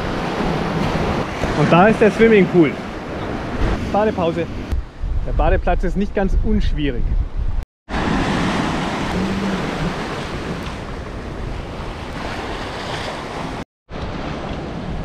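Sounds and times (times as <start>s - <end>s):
surf waves rushing: 0.0s - 4.8s, 7.9s - 15.0s.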